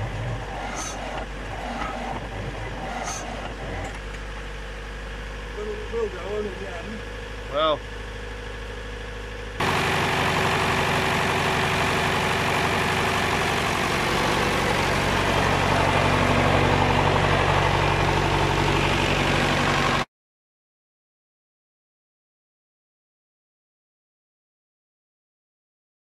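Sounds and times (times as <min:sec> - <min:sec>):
tractor diesel engine idling: 0:00.0 - 0:20.1.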